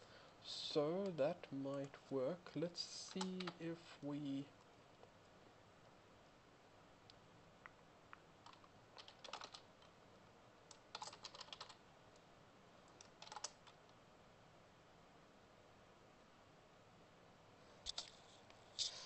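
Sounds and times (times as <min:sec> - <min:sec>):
faint keyboard typing: 0:01.0 - 0:05.4, 0:07.0 - 0:10.0, 0:10.6 - 0:14.0, 0:17.8 - 0:19.0.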